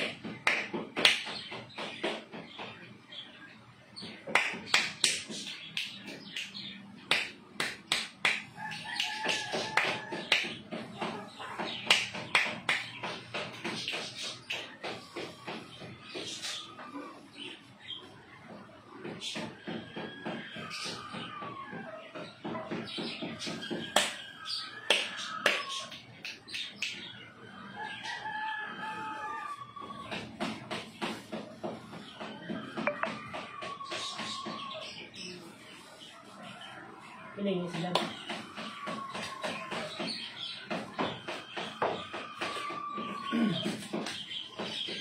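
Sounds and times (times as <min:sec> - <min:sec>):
sharp finger snaps: 0:04.4 - 0:10.5, 0:24.9 - 0:27.0
rooster crowing: 0:27.7 - 0:30.1.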